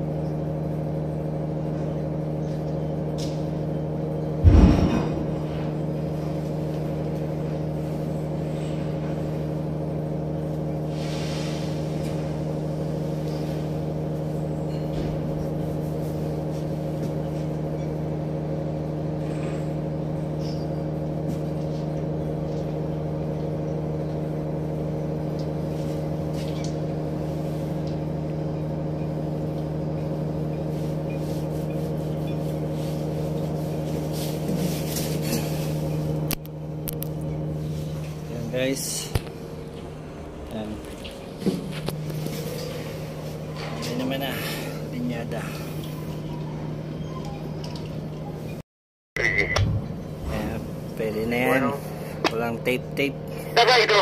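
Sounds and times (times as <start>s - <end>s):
ship machinery humming: 11.6s - 48.6s, 49.2s - 54.0s.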